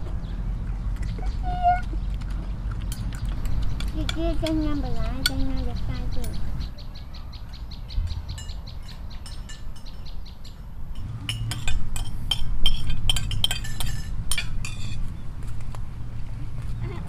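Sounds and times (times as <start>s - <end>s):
spoons clinking on plates: 9.2s - 15.1s.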